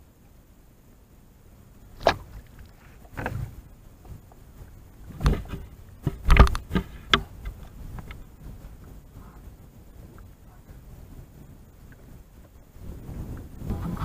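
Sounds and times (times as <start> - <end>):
knocks and thumps in boat: 2.0 - 9.0.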